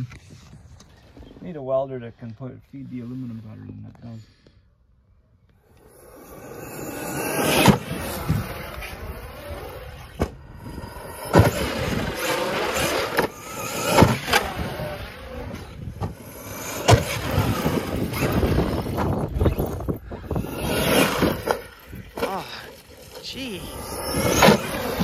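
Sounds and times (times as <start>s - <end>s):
electric motor whining: 5.7s - 25.0s
toy truck hitting the ground: 5.8s - 8.8s, 9.8s - 25.0s.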